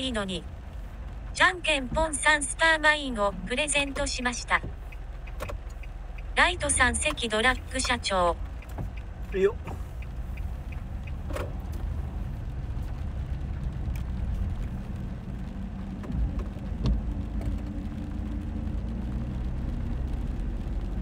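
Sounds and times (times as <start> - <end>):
car engine and tyres rumbling: 0.0 - 21.0
faint clicks: 4.0 - 13.2.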